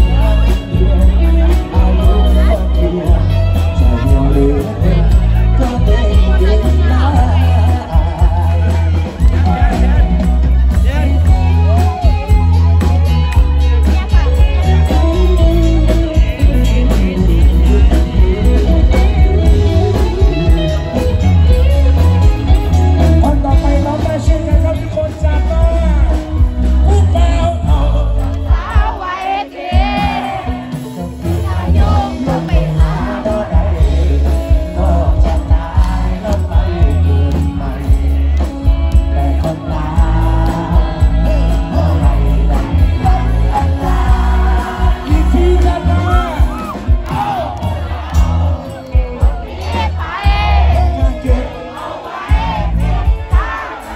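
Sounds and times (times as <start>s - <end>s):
drums: 0.0s - 53.9s
electric guitars: 0.0s - 53.9s
heavy bass beat: 0.0s - 53.9s
man singing: 0.0s - 53.9s.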